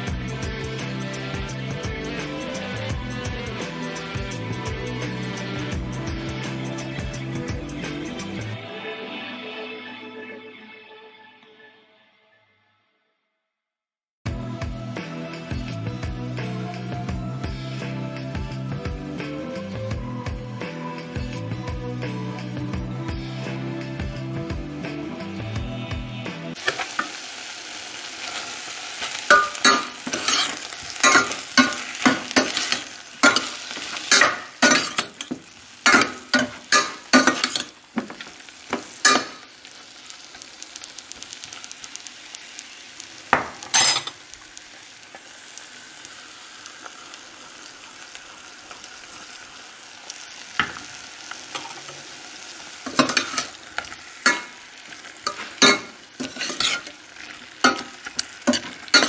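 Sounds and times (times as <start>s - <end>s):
vegetables sizzling in a pot: 0.0s - 8.6s, 26.5s - 59.0s
metal spoon scraping a pot: 29.3s - 31.8s, 55.2s - 57.0s.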